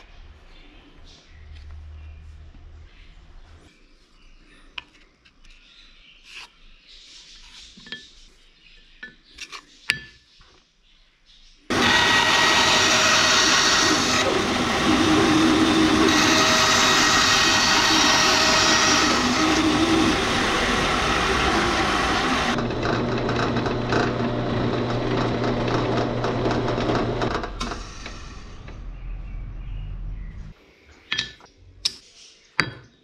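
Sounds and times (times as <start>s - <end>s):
drill press boring into steel: 11.7s - 28.7s
band saw cutting steel: 11.7s - 28.8s.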